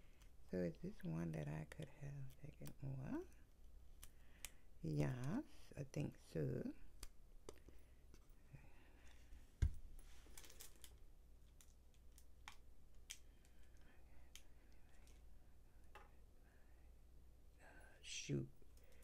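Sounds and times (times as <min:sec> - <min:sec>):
faint clicks and taps: 0:07.0 - 0:08.3, 0:10.4 - 0:15.2.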